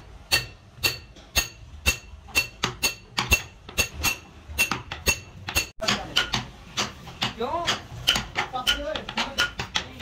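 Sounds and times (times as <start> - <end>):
metal punch struck with bar: 0.0 - 9.8.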